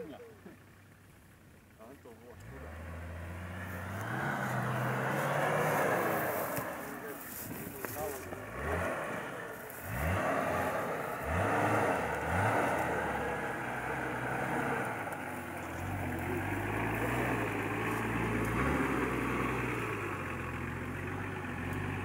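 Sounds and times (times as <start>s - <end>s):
car engine revving: 0.0s - 22.0s.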